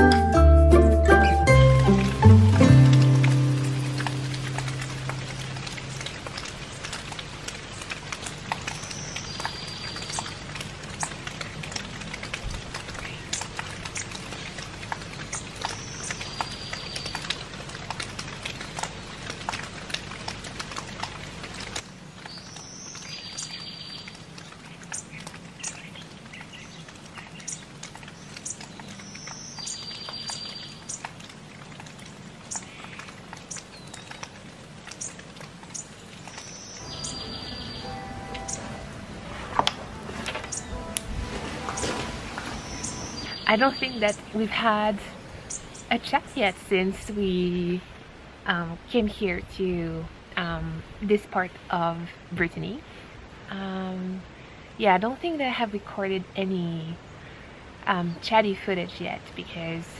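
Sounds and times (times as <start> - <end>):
songbird buzzy trill: 0.0 - 6.0, 36.6 - 39.0, 40.4 - 41.0
raindrops ticking: 0.0 - 52.8
light rain: 0.0 - 59.9.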